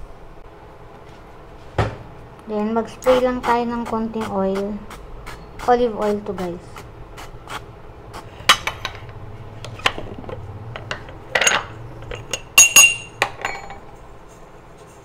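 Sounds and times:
kitchenware clinking on plate: 9.8s - 13.9s.

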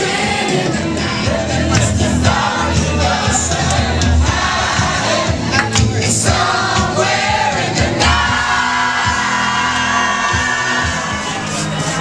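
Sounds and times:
crowd singing along: 0.0s - 12.0s
loud pop song over sound system: 0.0s - 12.0s
people whooping: 8.7s - 12.0s.

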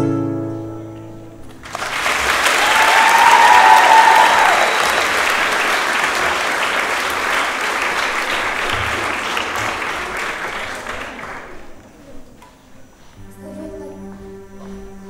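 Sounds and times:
audience applauding: 1.4s - 12.0s.

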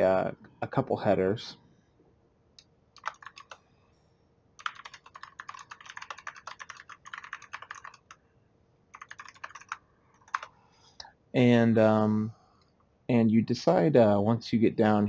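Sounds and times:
typing on computer keyboard: 3.0s - 3.6s, 4.6s - 8.2s, 8.9s - 10.6s.

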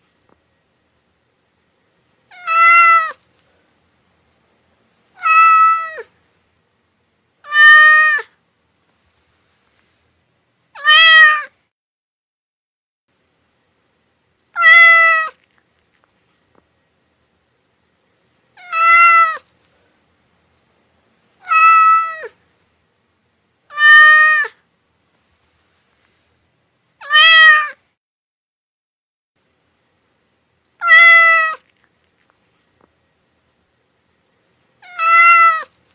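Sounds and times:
cat meowing: 2.3s - 3.2s, 5.2s - 6.1s, 7.4s - 8.3s, 10.8s - 11.6s, 14.6s - 15.4s, 18.6s - 19.5s, 21.4s - 22.4s, 23.7s - 24.6s, 27.0s - 27.8s, 30.8s - 31.7s, 34.8s - 35.8s.

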